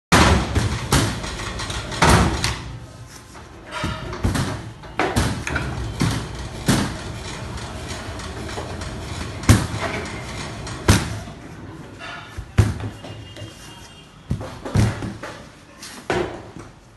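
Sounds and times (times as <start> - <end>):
machine knocks and thumps: 0.1 - 2.6, 3.7 - 11.3
dough sheeter humming: 5.4 - 11.4.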